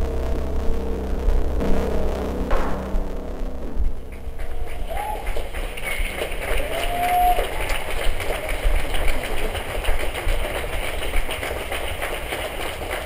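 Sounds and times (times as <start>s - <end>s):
low engine-like rumble: 0.0s - 7.0s
noise haze: 0.0s - 13.0s.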